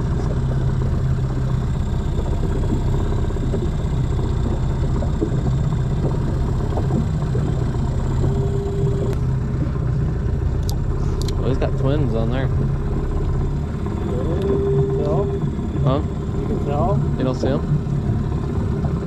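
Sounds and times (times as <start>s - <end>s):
outboard motor idling: 0.0s - 19.0s.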